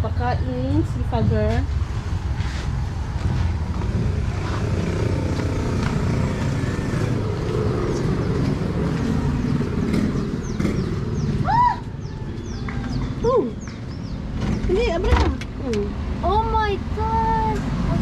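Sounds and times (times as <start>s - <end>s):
motor engine running: 4.4s - 11.5s
rising and falling bird call: 7.5s - 14.3s.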